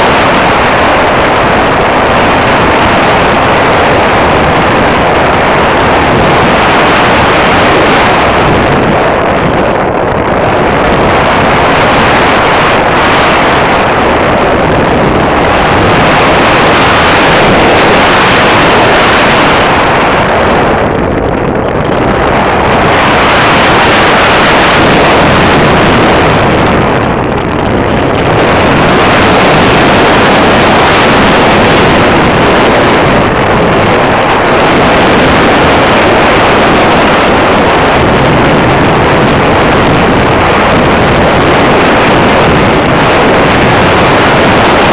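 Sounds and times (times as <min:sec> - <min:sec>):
model airplane motor: 0:00.0 - 0:44.9
wind noise: 0:00.0 - 0:44.9.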